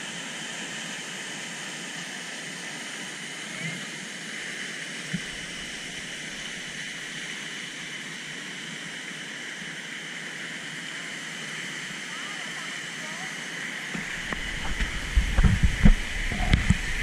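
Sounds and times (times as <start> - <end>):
waterfall rushing: 2.4 - 8.5, 10.3 - 17.0.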